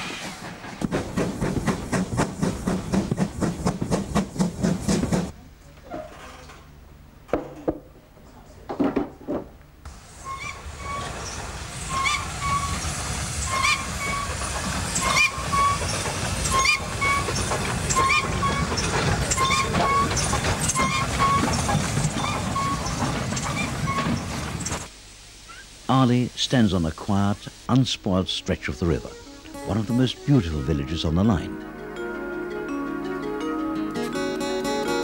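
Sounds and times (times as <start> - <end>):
train rumbling on track: 0.0 - 5.4, 9.9 - 24.9
short squeaks: 15.0 - 24.9.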